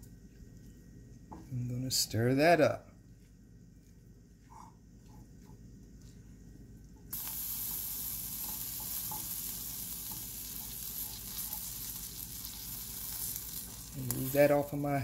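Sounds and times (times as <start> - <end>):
vegetables sizzling in a wok: 7.1 - 15.0.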